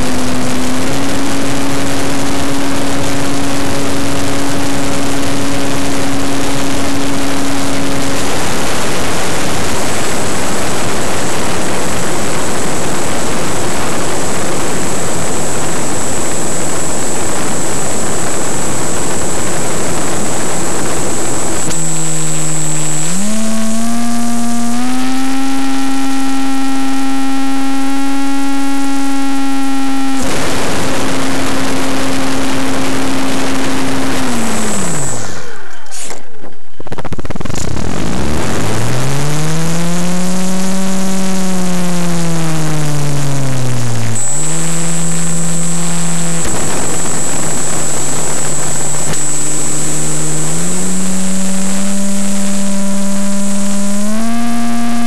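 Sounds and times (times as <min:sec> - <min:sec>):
wind rush over microphone: 0:00.0 - 0:23.4, 0:43.7 - 0:50.6
model airplane motor humming: 0:00.0 - 0:36.2, 0:36.9 - 0:55.0.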